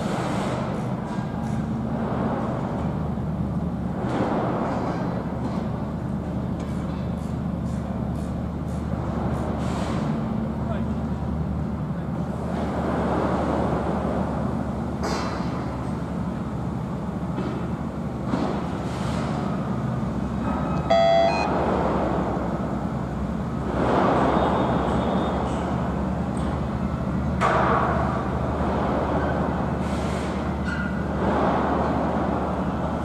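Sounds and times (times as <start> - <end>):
low engine hum: 0.0 - 33.0
vehicles passing: 8.0 - 33.0
short beep: 20.7 - 21.5.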